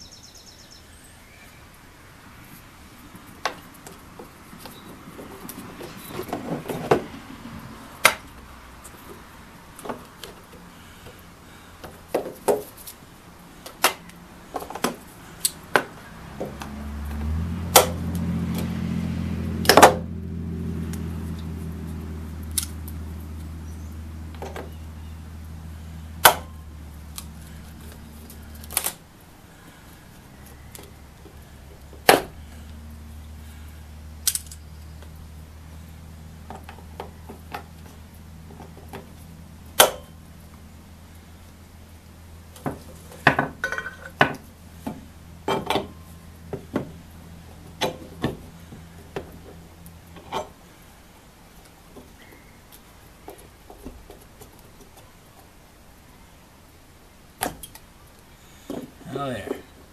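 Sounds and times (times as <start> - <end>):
steady low hum: 1.8 - 53.7.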